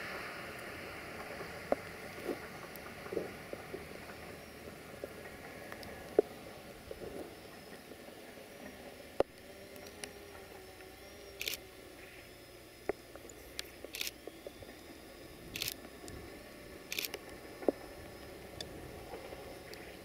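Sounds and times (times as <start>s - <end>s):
distant diesel railcar running: 0.0s - 20.0s
sharp clicks: 11.4s - 11.6s, 12.8s - 14.8s, 15.5s - 16.2s, 16.9s - 17.8s.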